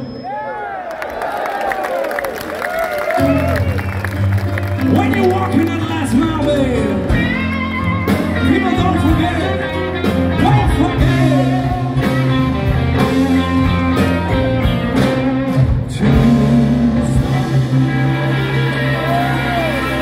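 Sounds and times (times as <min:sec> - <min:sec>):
blues-rock band playing: 0:02.9 - 0:20.0
person singing: 0:08.4 - 0:14.1, 0:15.0 - 0:19.9.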